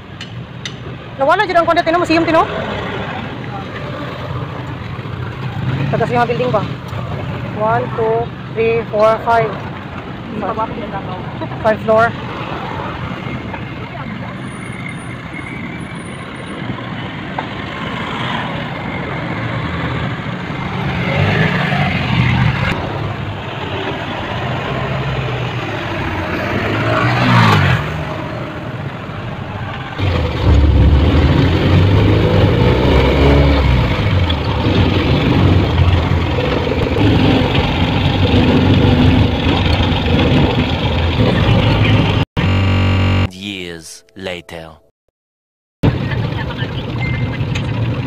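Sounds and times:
road traffic: 0.0s - 44.7s, 45.8s - 48.0s
nearby engine running: 39.3s - 43.3s.

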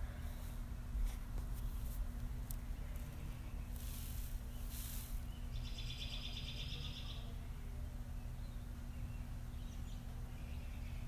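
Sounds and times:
steady low hum: 0.0s - 11.0s
bird trilling: 4.5s - 7.3s.

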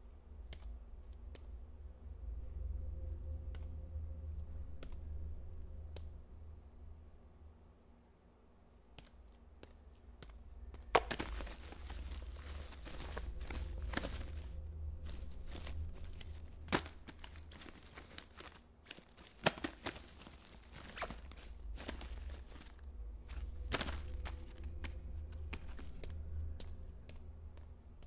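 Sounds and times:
steady low hum: 0.0s - 28.0s
rummaging through bag: 11.0s - 26.0s.

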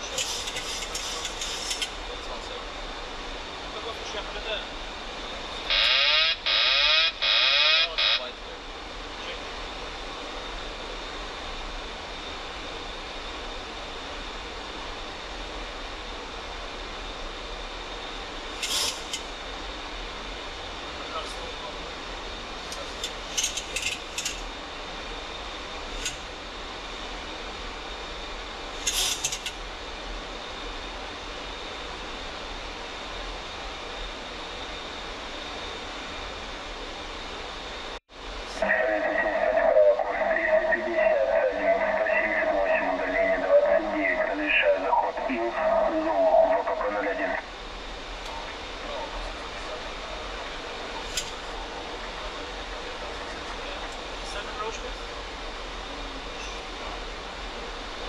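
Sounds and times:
flight deck air rush: 0.0s - 44.5s
aircraft engine noise: 0.0s - 58.0s
faint high whine: 0.0s - 58.0s
autopilot warning wailing: 5.6s - 8.4s.

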